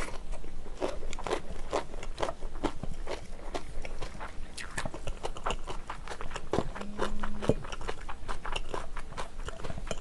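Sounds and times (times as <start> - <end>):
chewing noodles: 0.0 - 10.0
mouth clicks: 4.6 - 5.0
low hum: 6.6 - 8.3.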